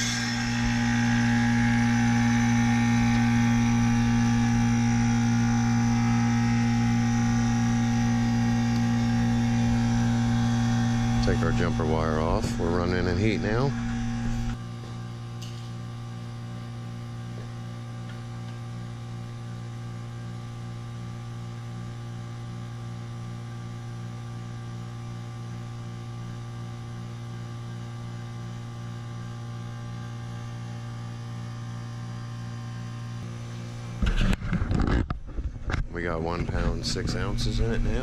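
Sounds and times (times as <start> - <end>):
faint regular pulsing: 0.0 - 15.3, 32.6 - 38.0
heat pump compressor hum: 0.0 - 38.0.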